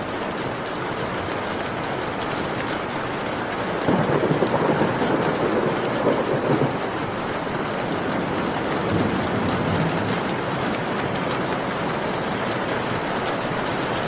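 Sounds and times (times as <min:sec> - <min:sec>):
steady rain: 0:00.0 - 0:14.0
thunder rumbling: 0:03.8 - 0:14.0.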